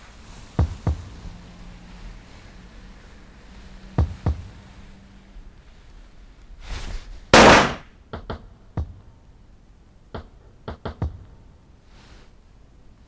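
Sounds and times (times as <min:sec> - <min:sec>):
loud bang: 0:07.4 - 0:07.9.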